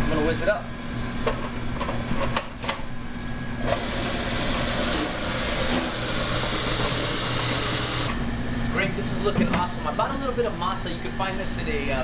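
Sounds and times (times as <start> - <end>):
food processor running: 3.6 - 8.2.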